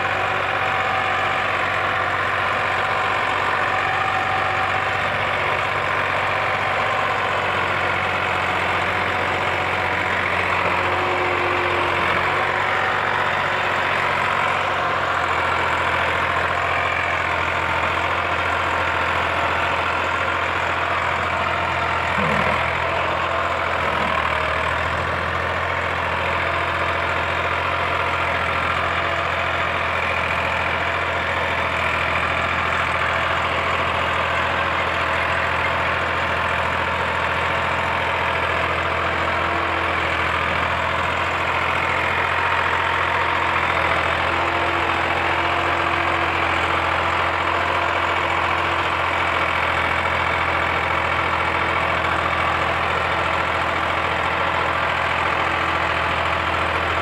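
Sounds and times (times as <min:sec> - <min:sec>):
tractor diesel engine under load: 0:00.0 - 0:57.0.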